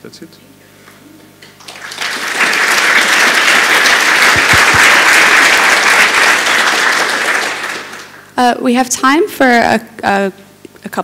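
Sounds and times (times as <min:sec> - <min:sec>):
audience applauding: 0:01.6 - 0:08.3.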